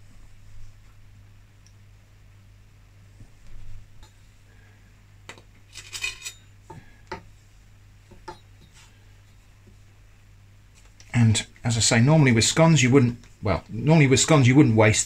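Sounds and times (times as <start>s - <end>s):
metal utensils clinking: 5.7s - 6.5s.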